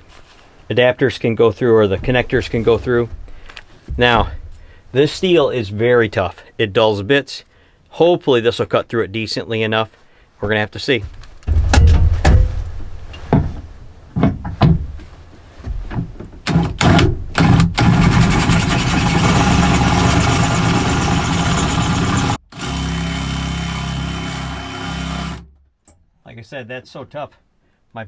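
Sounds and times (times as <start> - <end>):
drill cutting sheet steel: 17.8 - 25.5.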